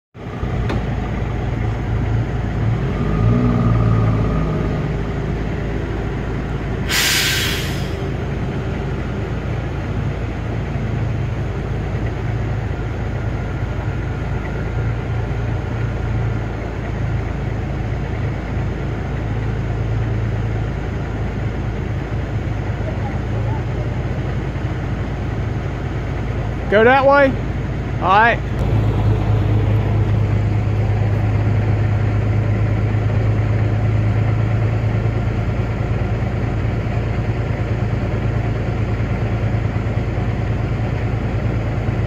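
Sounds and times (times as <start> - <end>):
diesel engine running: 0.2 - 42.0
loud air hiss: 6.8 - 8.1.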